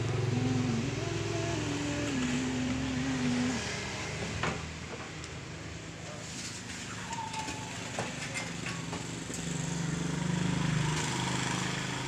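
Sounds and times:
vehicle engine passing: 0:00.0 - 0:04.7.

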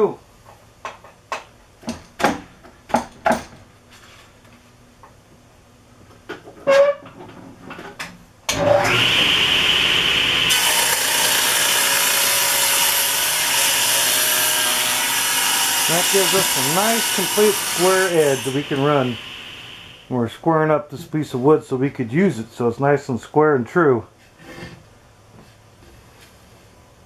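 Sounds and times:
wood and metal knocks: 0:00.8 - 0:03.6
saw blade cutting board: 0:08.5 - 0:20.1
table saw running: 0:08.5 - 0:20.1.

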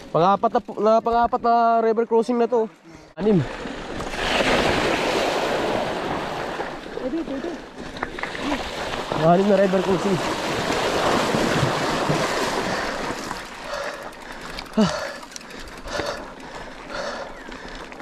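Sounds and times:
river water splashing and rushing: 0:03.4 - 0:14.7.

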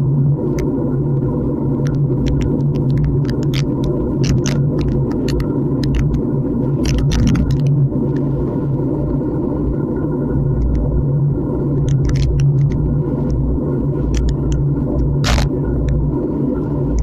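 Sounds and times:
wind and road rumble: 0:00.0 - 0:17.0
bike clicks and rattles: 0:01.9 - 0:07.8, 0:11.8 - 0:12.8, 0:15.2 - 0:15.5.

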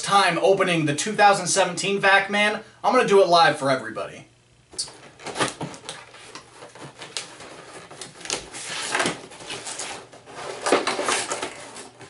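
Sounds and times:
cardboard scraping and rustling: 0:04.9 - 0:12.0.

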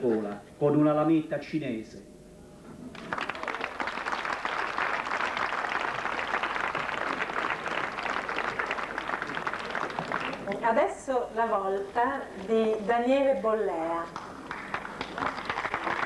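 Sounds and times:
audience applauding: 0:02.9 - 0:10.7, 0:14.1 - 0:16.0.

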